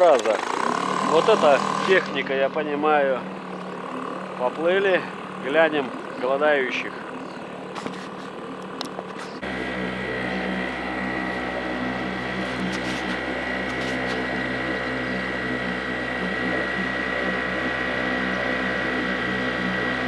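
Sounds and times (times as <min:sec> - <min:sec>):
high whine: 0:00.0 - 0:20.0
outboard motor droning: 0:00.0 - 0:20.0.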